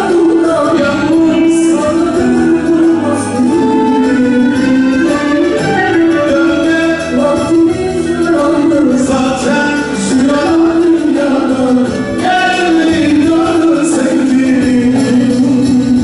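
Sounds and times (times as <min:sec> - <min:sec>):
man singing into microphone: 0:00.0 - 0:16.0
violins and plucked strings: 0:00.0 - 0:16.0.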